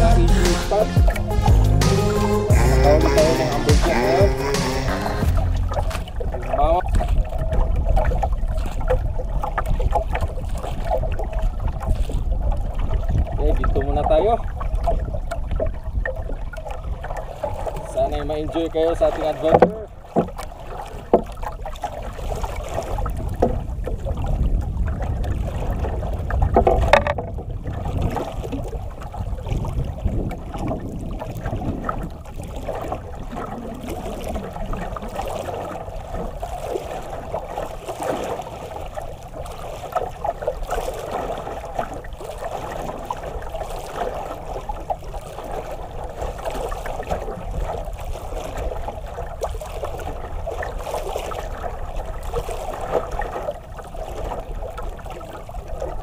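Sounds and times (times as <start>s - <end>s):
low rumble: 0.0s - 6.4s
water lapping against canoe hull: 0.0s - 56.0s.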